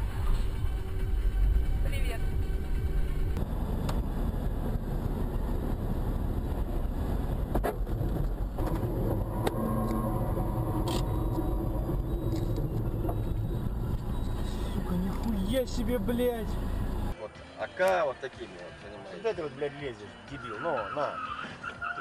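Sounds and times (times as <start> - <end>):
car driving rumble: 0.0 - 17.2.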